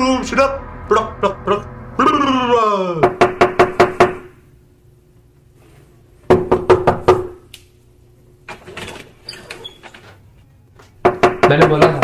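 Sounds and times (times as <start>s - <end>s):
faint steady hum: 0.0s - 12.0s
rapid knocking on door: 3.0s - 4.3s, 6.3s - 7.4s, 11.0s - 12.0s.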